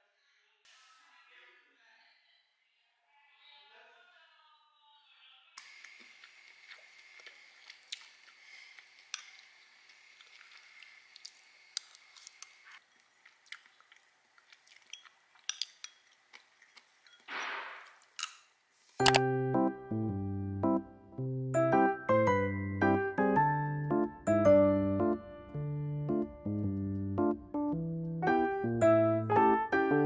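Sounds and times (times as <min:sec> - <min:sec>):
chewing: 0:05.6 - 0:17.3.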